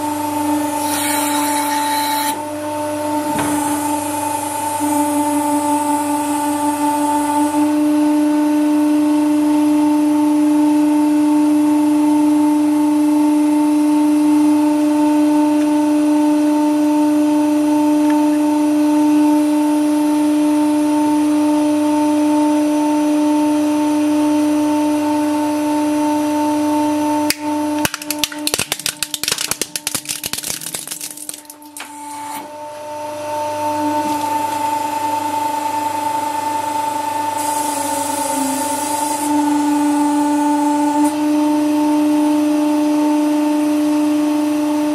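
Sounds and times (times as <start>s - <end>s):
hydraulic pump humming: 0.1s - 7.8s
plastic cracking and snapping: 27.3s - 31.8s.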